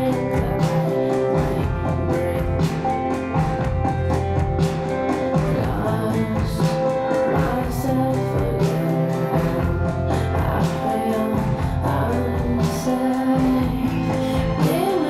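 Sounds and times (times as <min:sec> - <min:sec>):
song with voice and guitar: 0:00.0 - 0:15.0.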